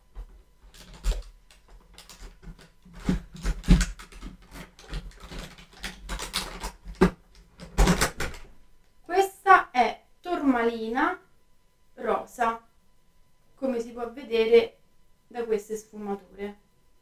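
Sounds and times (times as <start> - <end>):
hands rustling packaging: 0.2 - 8.5.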